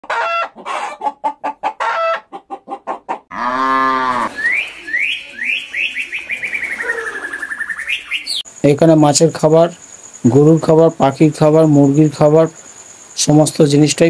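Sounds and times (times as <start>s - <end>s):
hens clucking: 0.0s - 7.6s
long farm animal call: 0.0s - 7.7s
bird chirping into a trill: 4.0s - 8.5s.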